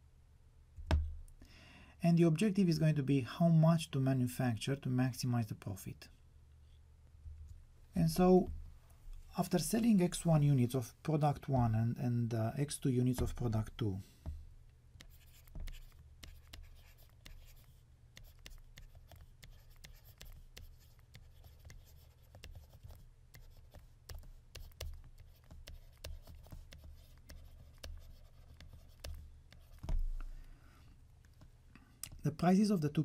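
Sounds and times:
dull bump: 0.8 - 1.3
stylus tapping and scratching: 13.0 - 14.4, 15.0 - 30.5, 31.2 - 32.3.

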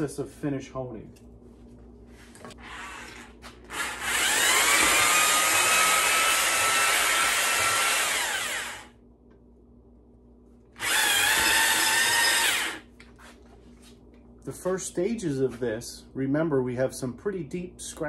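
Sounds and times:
electric drill honing a cylinder: 2.6 - 8.9, 10.8 - 12.8.

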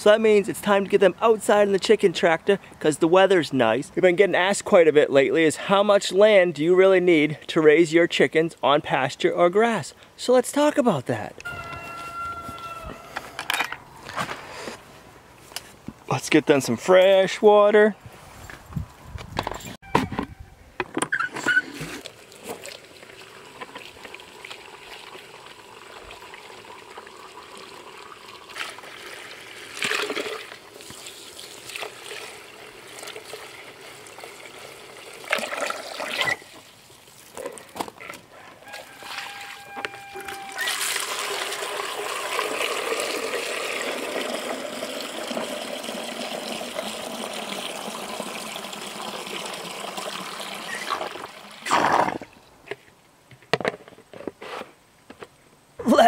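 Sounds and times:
hose water running into bucket: 21.8 - 37.6, 38.7 - 52.3.

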